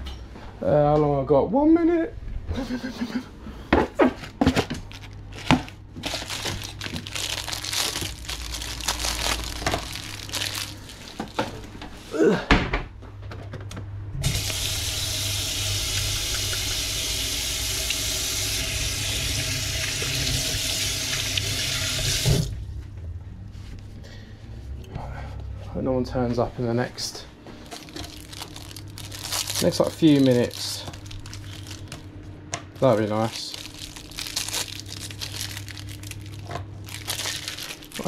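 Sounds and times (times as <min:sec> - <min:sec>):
tap water running into metal sink: 0:14.2 - 0:22.5.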